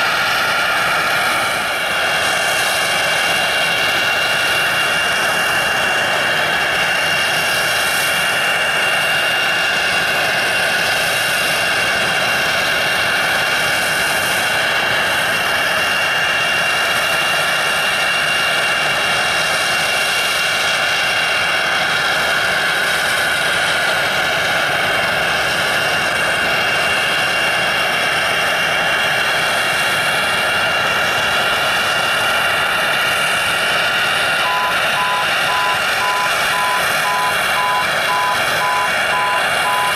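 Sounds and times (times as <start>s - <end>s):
jet engines whining: 0.0s - 39.9s.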